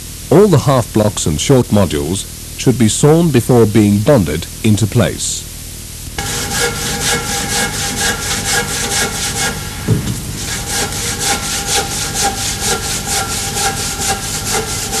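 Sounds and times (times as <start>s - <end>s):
handsaw cutting plaster: 6.2s - 15.0s.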